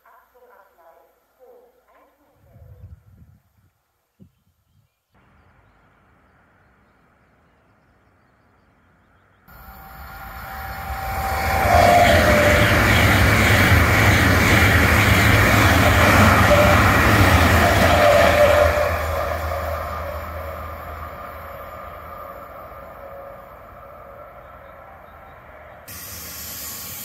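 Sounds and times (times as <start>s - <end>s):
high-speed train passing: 9.5s - 27.0s.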